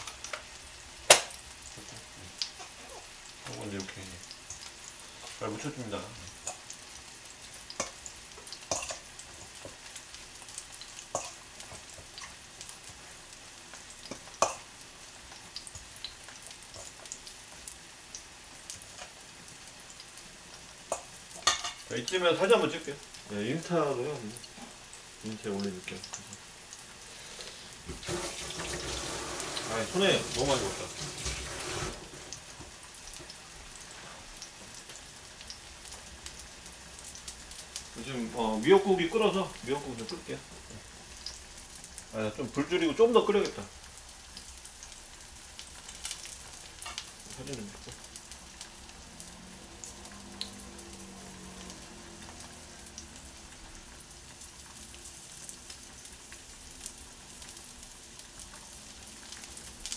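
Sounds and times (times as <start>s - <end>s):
meat sizzling in a pan: 0.0s - 59.9s
water tap running: 27.8s - 32.8s.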